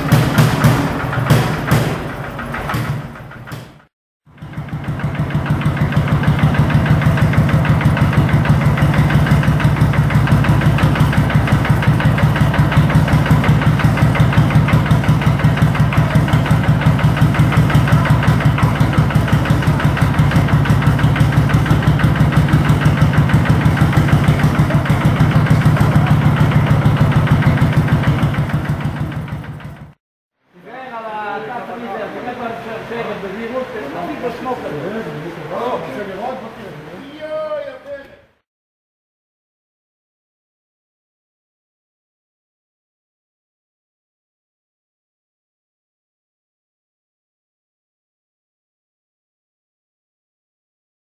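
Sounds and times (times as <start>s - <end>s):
tractor engine idling: 0.0s - 30.0s, 31.2s - 38.4s.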